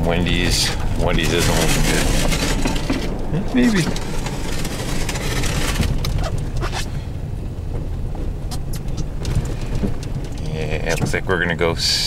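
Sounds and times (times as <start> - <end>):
engine and road rumble: 0.0 - 12.0.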